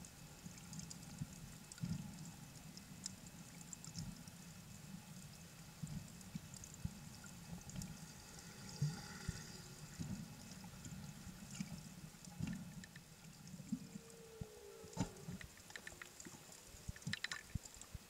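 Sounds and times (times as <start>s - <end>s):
underwater water movement: 0.4s - 18.0s
whale song: 13.6s - 16.3s.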